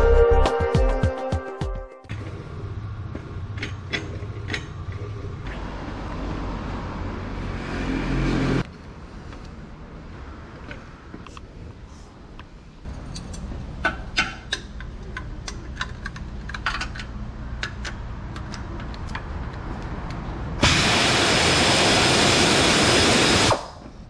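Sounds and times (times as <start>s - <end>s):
wrench clicking on metal bolt: 3.5s - 4.9s, 12.9s - 19.3s
loud steady hiss: 20.6s - 23.7s.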